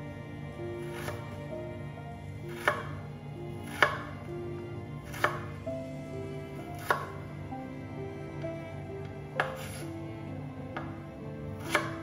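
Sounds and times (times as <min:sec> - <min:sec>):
background music: 0:00.0 - 0:12.0
knife slicing on cutting board: 0:00.8 - 0:01.3, 0:02.5 - 0:03.0, 0:03.6 - 0:04.1, 0:05.0 - 0:05.6, 0:06.7 - 0:07.2, 0:09.4 - 0:10.0, 0:11.6 - 0:12.0.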